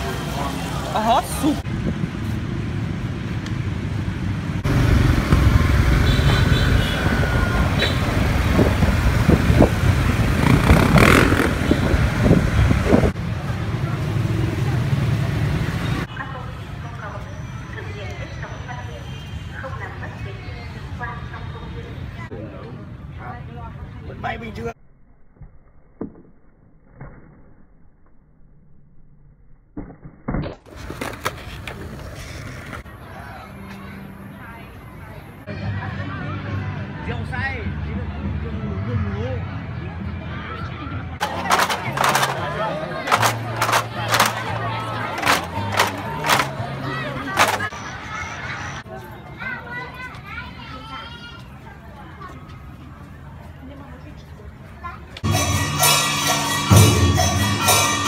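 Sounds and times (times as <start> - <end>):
street traffic rumble: 0.0 - 24.8, 30.6 - 58.0
scooter engine: 4.6 - 13.2, 41.2 - 47.7
wind rushing: 8.1 - 13.2
skateboard rolling on stone tiles: 8.3 - 13.1, 30.5 - 33.0, 41.2 - 47.8
skateboard clacks: 30.6 - 32.8, 41.2 - 47.7.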